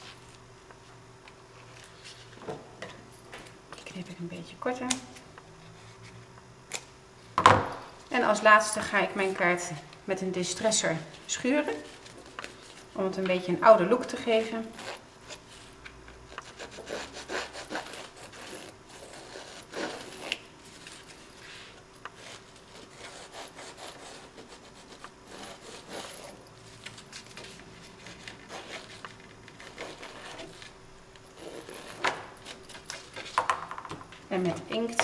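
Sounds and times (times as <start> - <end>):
tool scraping paper edges: 14.3 - 30.8, 31.4 - 33.3.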